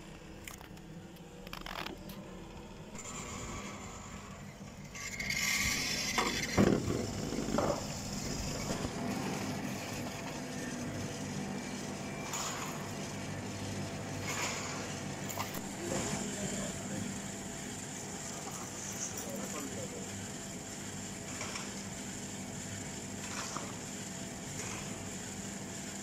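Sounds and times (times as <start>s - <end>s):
chairlift mechanical hum: 0.0s - 21.1s.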